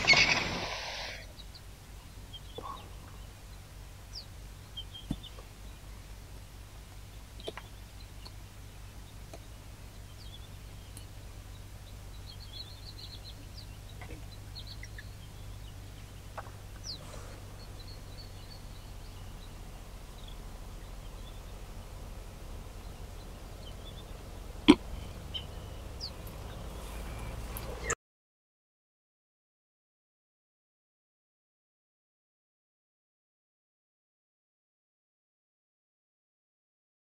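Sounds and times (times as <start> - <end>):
high bird chirps: 0.0 - 1.6, 10.2 - 21.4, 24.8 - 28.0
steady low hum: 0.0 - 28.0.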